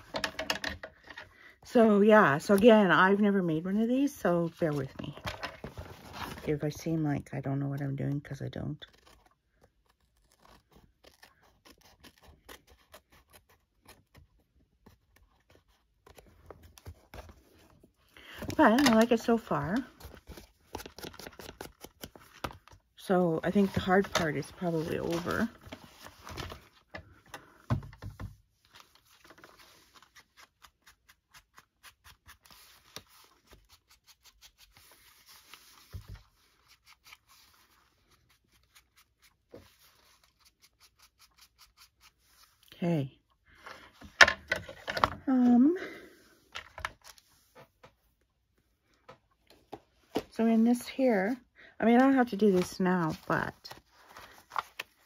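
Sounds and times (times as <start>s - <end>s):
scissors cutting paper: 8.8s - 14.3s.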